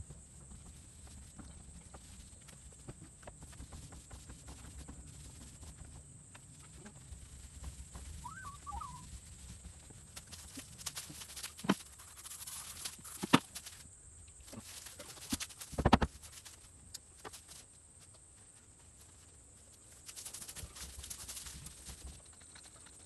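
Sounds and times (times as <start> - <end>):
knocks and thuds on wood: 15.3 - 16.2.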